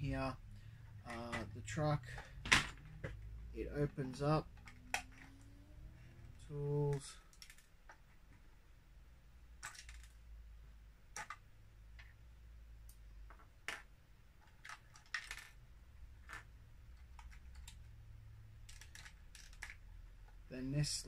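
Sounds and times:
faint low hum: 0.0s - 21.0s
plastic bricks clicking: 6.9s - 8.1s, 9.6s - 10.2s, 11.1s - 11.4s, 12.9s - 15.6s, 18.6s - 20.4s.

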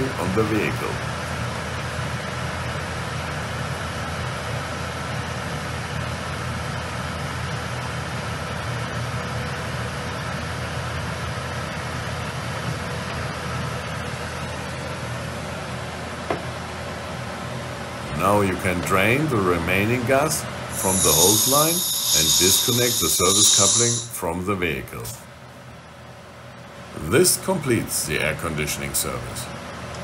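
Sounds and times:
air conditioning whir and hum: 0.0s - 30.0s
faint steady whine: 17.3s - 24.4s.

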